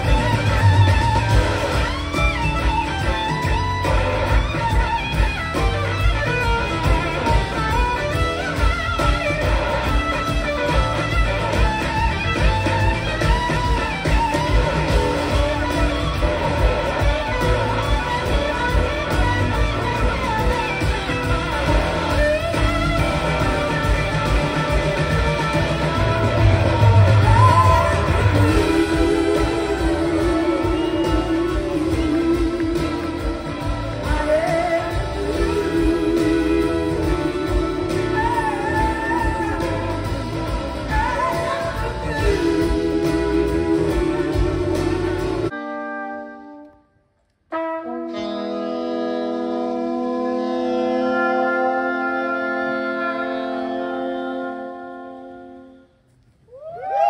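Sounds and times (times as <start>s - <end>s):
steady drum beat: 0.0s - 45.5s
bass: 0.0s - 45.6s
blues rock band playing: 0.0s - 46.6s, 47.6s - 55.6s
slide electric guitar: 0.0s - 46.8s, 47.5s - 55.9s.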